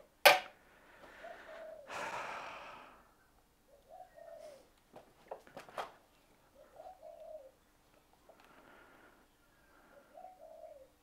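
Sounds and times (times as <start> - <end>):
dove cooing: 1.1 - 1.9, 3.7 - 4.7, 6.5 - 7.6, 9.6 - 11.0.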